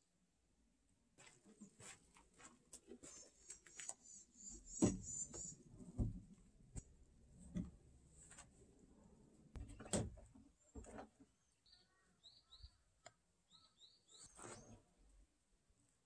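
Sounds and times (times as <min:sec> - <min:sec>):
high bird chirps: 0:11.6 - 0:12.8, 0:13.5 - 0:14.7.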